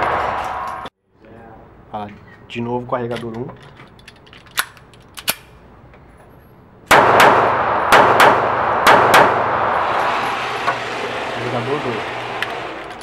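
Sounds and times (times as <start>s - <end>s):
pistol metallic clicks: 3.6s - 5.6s
pistol shots ringing indoors: 6.9s - 9.7s.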